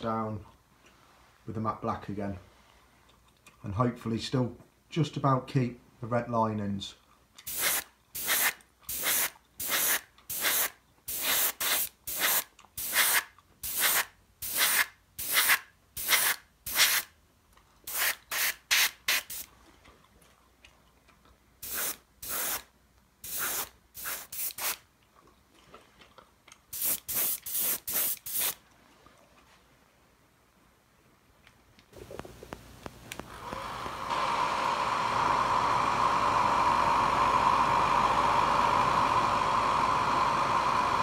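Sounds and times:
airbrush hissing bursts: 7.5 - 17.1, 17.9 - 19.5, 21.6 - 24.8, 26.8 - 28.6.

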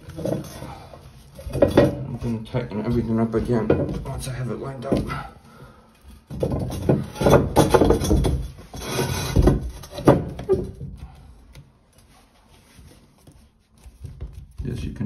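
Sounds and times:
plastic pipe rubbing and scraping: 0.0 - 5.2, 6.1 - 14.9.

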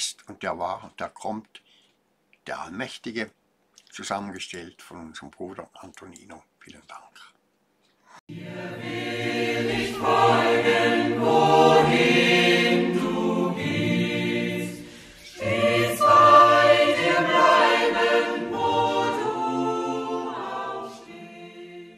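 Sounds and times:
choir singing: 8.3 - 21.9.

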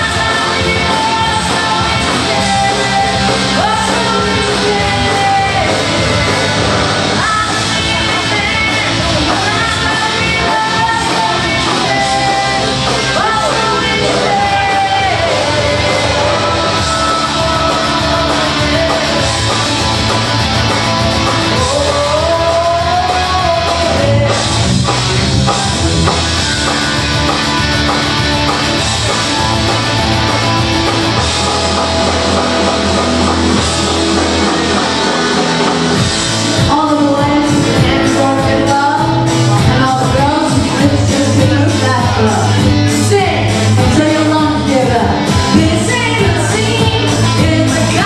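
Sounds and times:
woman singing karaoke: 0.0 - 20.0, 21.5 - 24.6, 36.5 - 48.0
rock backing track: 0.0 - 48.0.

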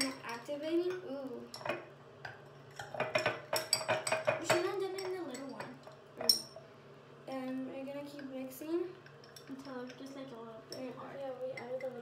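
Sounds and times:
spoon clinking against glass: 6.2 - 6.5.

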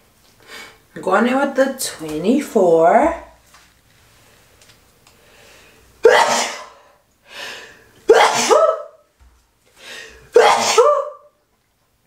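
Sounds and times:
woman talking: 0.9 - 3.4
sharp intake of breath: 5.2 - 8.6, 9.8 - 10.3
woman sneezing: 6.0 - 6.8, 8.1 - 9.0, 10.3 - 11.3.

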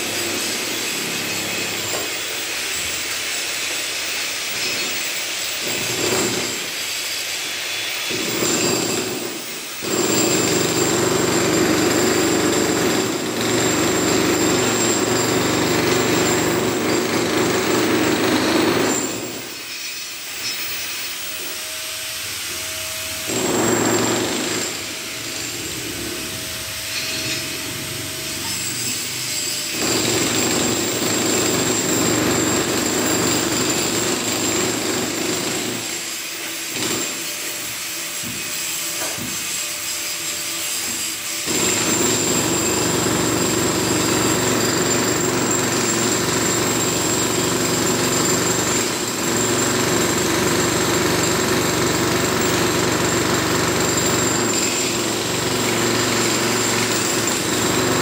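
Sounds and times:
angle grinder cutting steel: 13.1 - 30.8.

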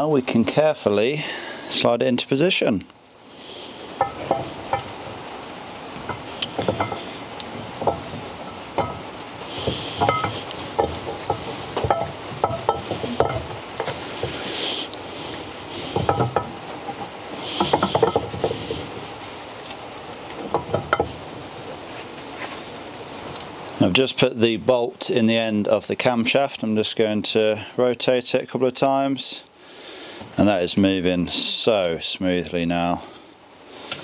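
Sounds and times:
metal scraping in bores: 3.9 - 5.0, 6.0 - 22.7
metallic clicks and knocks: 8.8 - 14.0, 16.0 - 18.6.

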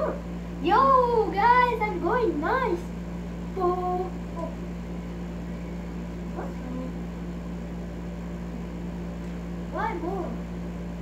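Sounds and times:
faint small noises: 0.0 - 7.6
steady low hum: 0.0 - 11.0.

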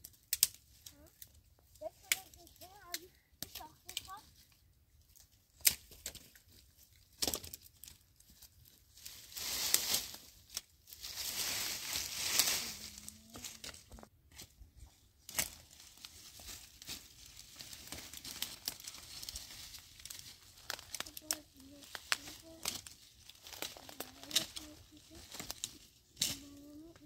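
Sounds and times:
dry leaves and twigs crunching: 0.0 - 27.0
sharp twig cracks: 5.6 - 6.2.

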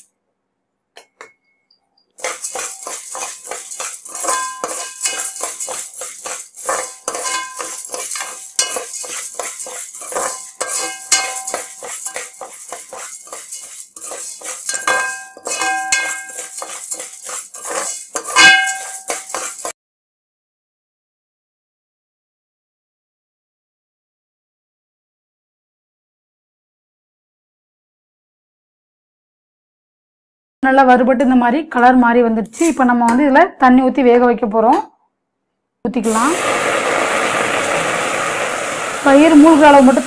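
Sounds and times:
pan ringing clank: 1.0 - 13.1, 14.6 - 17.0, 17.8 - 19.7
spatula stirring: 2.1 - 19.8
beans rattling in a pan: 2.2 - 19.7.

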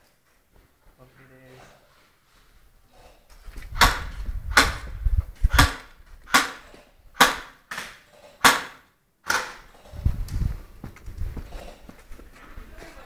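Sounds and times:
airsoft gun shots: 3.8 - 4.9, 5.5 - 9.7.

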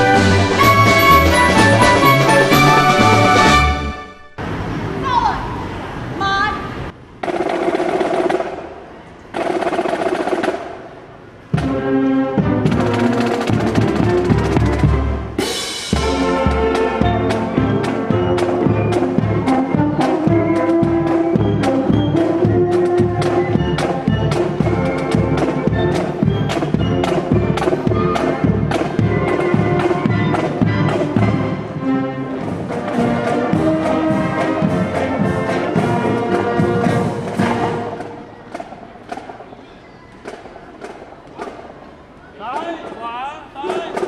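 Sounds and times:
steady drumbeat: 0.0 - 3.9, 7.2 - 39.5, 42.8 - 44.0
brass horns playing: 0.0 - 4.4, 11.6 - 38.2.

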